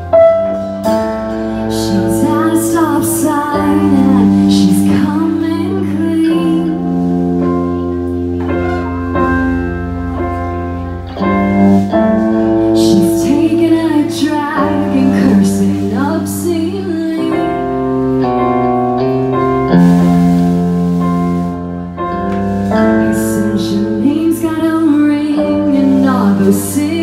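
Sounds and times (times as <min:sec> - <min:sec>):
electric guitar: 0:00.0 - 0:27.0
piano chords: 0:00.0 - 0:27.0
woman singing: 0:01.6 - 0:07.2, 0:12.6 - 0:17.9, 0:22.8 - 0:27.0.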